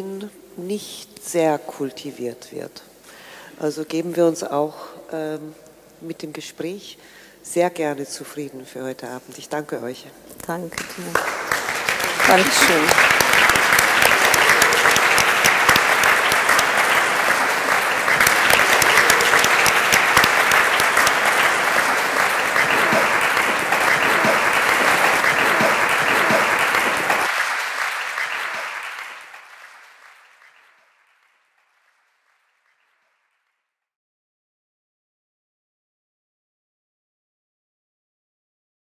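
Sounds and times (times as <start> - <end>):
audience applauding: 10.8 - 32.1.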